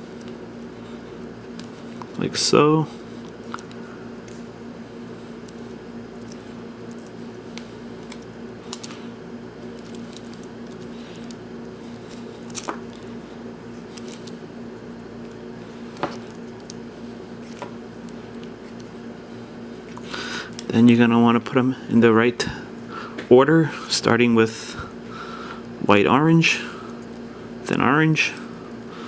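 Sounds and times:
wires rustling and clicking: 0:00.0 - 0:19.0
steady low hum: 0:00.0 - 0:29.0.

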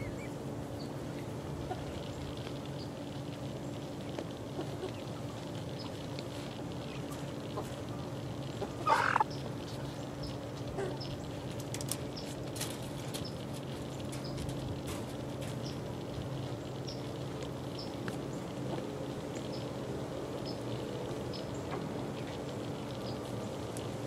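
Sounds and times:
chickens peeping: 0:00.0 - 0:02.9, 0:03.9 - 0:11.3
steady low hum: 0:00.0 - 0:24.0
chicken squawk: 0:08.7 - 0:09.3.

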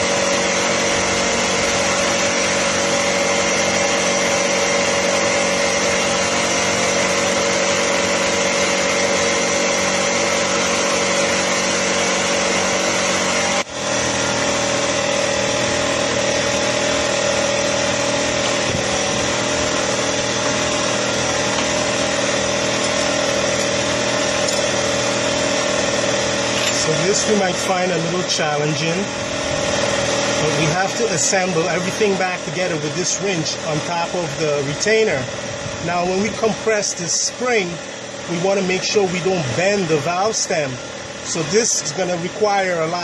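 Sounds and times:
small engine running steadily: 0:00.0 - 0:43.0.

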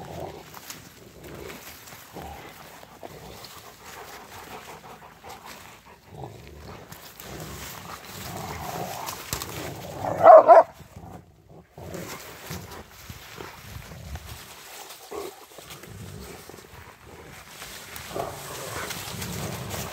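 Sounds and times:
twigs crackling: 0:00.0 - 0:11.2, 0:11.8 - 0:19.9
dog barking: 0:10.1 - 0:10.7.

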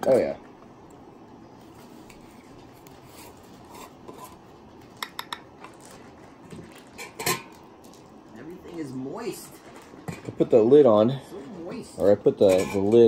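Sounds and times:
light metal scraping: 0:12.4 - 0:13.0.

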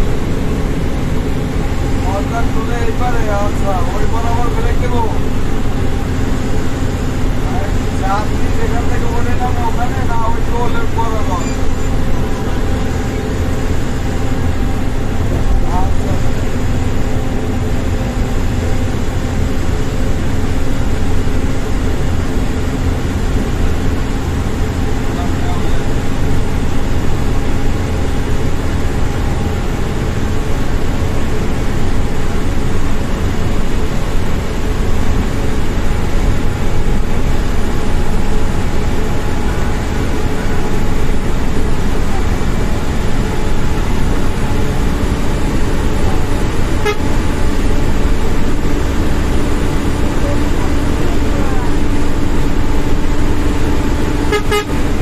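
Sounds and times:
bus engine drone: 0:00.0 - 0:55.0
tyres hissing on road: 0:00.0 - 0:55.0
horn toot: 0:46.8 - 0:47.3, 0:54.3 - 0:54.9.

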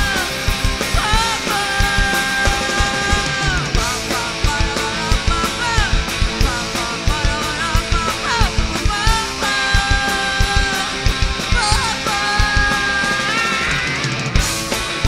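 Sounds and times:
bending lead guitar line: 0:00.0 - 0:15.0
rock band playing: 0:00.0 - 0:15.0.

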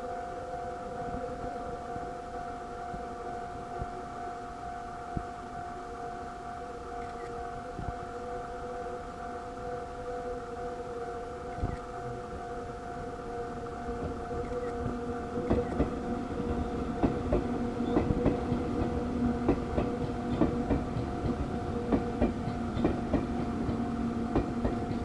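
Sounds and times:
two-tone level-crossing alarm: 0:00.1 - 0:16.8.

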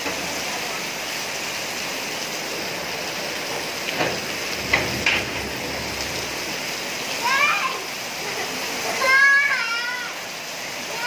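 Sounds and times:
heavy rain on paving: 0:00.0 - 0:11.0
metal gate knocks and scrapes: 0:04.0 - 0:06.5.

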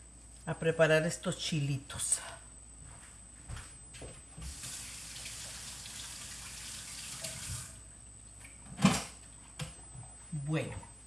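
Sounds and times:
kitchen tap running: 0:04.5 - 0:07.8.

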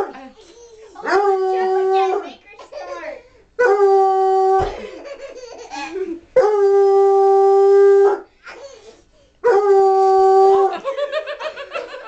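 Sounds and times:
dog howling: 0:06.4 - 0:08.3, 0:09.4 - 0:10.8.

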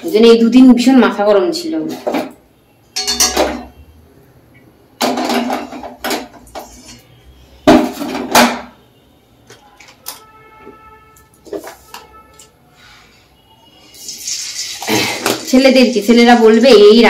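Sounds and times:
metal utensils clanking on pan: 0:03.0 - 0:03.8, 0:05.0 - 0:07.1.

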